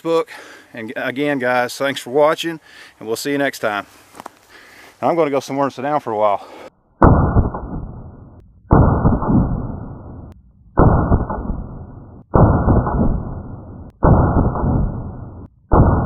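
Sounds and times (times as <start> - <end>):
pistol shots: 10.8 - 16.0.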